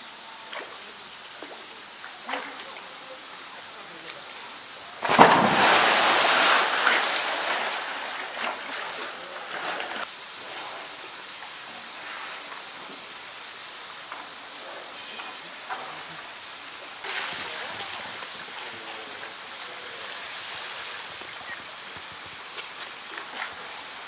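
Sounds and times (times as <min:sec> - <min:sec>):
water lapping and sloshing: 0:00.4 - 0:13.1
bear splashing into water: 0:05.0 - 0:10.1.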